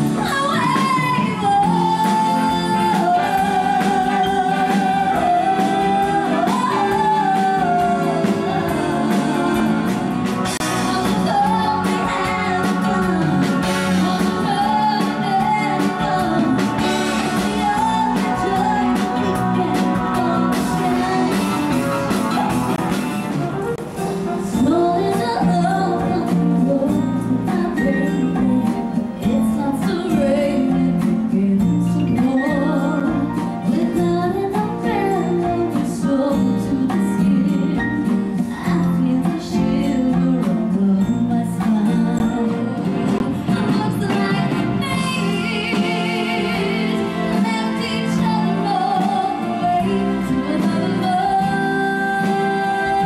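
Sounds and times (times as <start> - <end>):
woman singing pop song: 0.0 - 22.8, 24.2 - 53.0
band accompaniment: 0.0 - 53.0.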